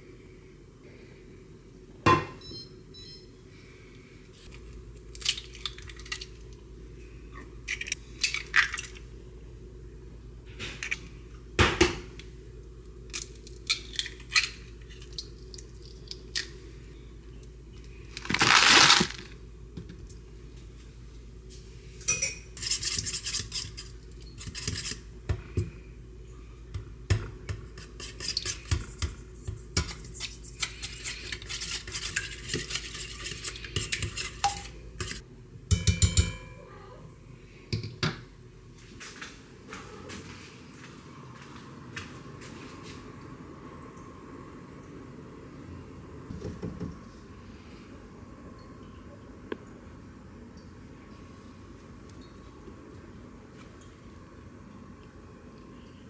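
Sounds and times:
whisk beating eggs in steel bowl: 22.5s - 25.1s, 27.2s - 35.2s.

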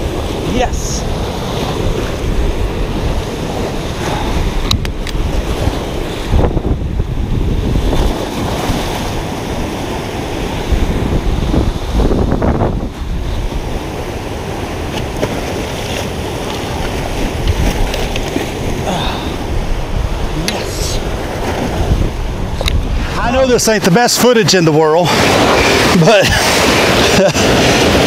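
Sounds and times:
river water rushing: 0.0s - 28.0s.

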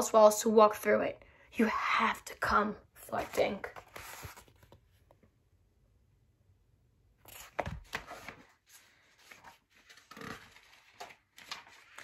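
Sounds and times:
book pages rustling: 3.0s - 5.2s, 7.2s - 12.0s.

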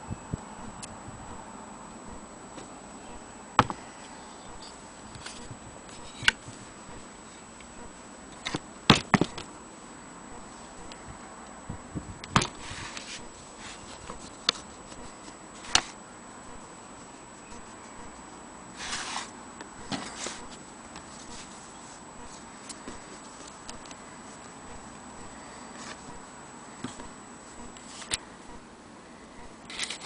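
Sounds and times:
faint steady hiss: 0.0s - 30.0s.

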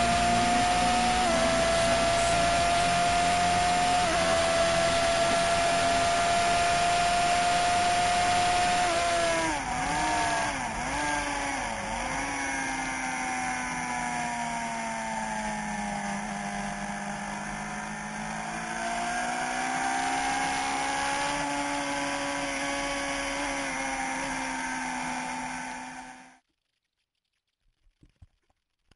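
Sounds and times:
motorcycle engine at speed: 0.0s - 26.5s.

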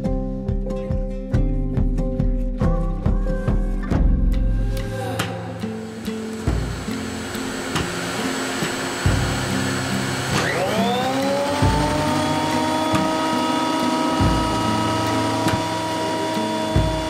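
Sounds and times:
music with low beat: 0.0s - 17.0s
thickness planer motor whine: 4.8s - 17.0s.

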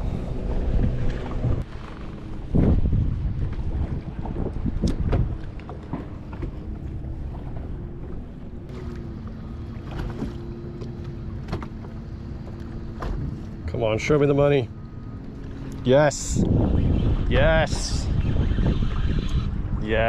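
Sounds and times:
wind on microphone: 0.0s - 7.6s, 15.9s - 20.0s
electric trolling motor hum: 0.0s - 19.9s
water slapping boat hull: 0.0s - 20.0s.

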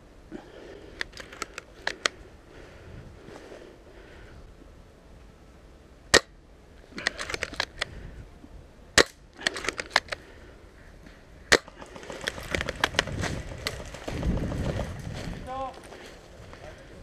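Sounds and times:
airsoft rifle shots: 11.5s - 12.9s.

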